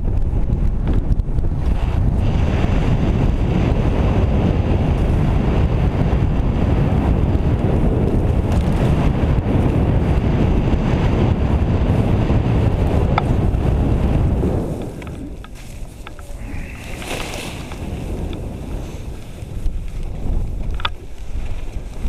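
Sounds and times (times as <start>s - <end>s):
wind buffeting microphone: 0.0s - 22.0s
skis hissing through snow: 15.5s - 19.6s.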